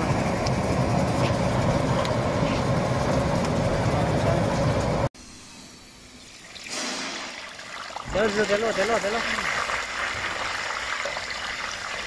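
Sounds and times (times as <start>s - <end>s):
machine humming: 0.0s - 6.4s.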